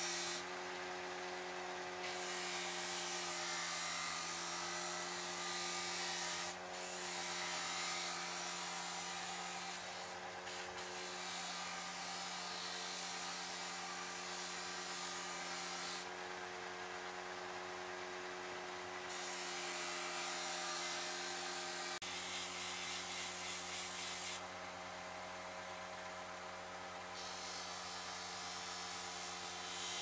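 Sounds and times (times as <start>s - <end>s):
bench grinder motor hum: 0.0s - 17.3s.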